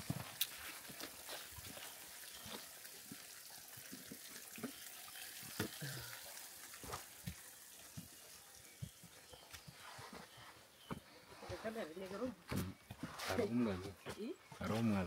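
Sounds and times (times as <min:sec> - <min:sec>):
footsteps on muddy trail: 0:00.0 - 0:03.2, 0:06.8 - 0:15.0.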